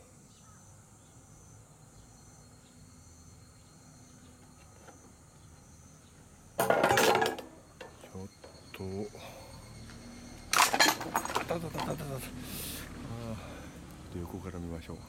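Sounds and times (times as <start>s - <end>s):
faint insect chirring: 0.0s - 15.0s
loud clattering rattle: 10.5s - 12.0s.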